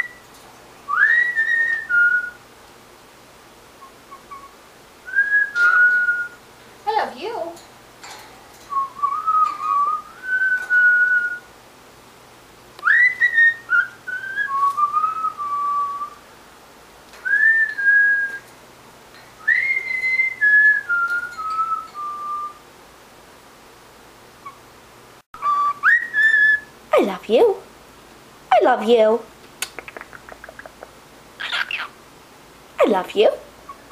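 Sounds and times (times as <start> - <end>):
cockatiel whistling tune phrases: 0.9 - 2.4, 3.8 - 6.4, 8.7 - 11.5, 12.8 - 16.2, 19.4 - 22.6, 25.4 - 26.7.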